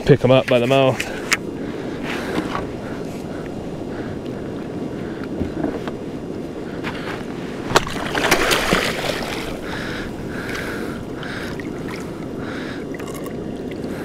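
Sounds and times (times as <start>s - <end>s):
wind and sea wash: 0.0s - 14.0s
water swishes: 7.2s - 14.0s
water splashing: 7.7s - 14.0s.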